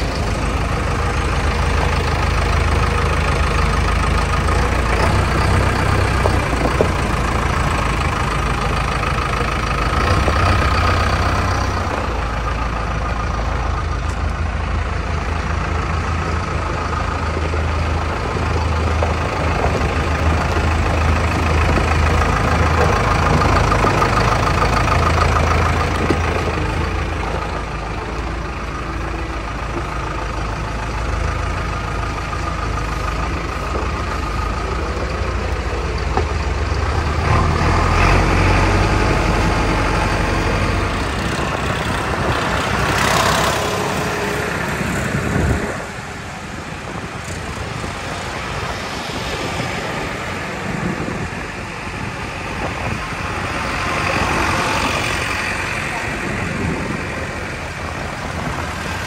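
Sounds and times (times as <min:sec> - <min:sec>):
diesel engine idling: 0:00.0 - 0:59.0.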